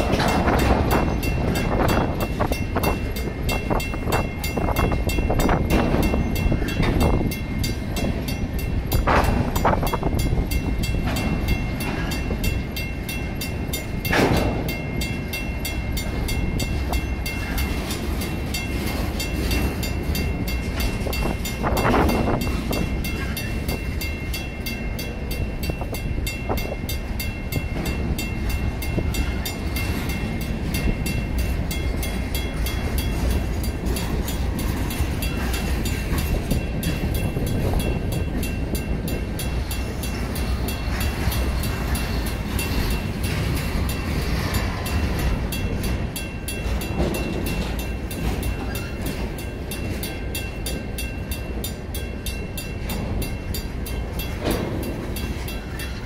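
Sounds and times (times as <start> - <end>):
freight train rumbling past: 0.0 - 56.0
mechanical crossing bell ringing: 0.0 - 56.0.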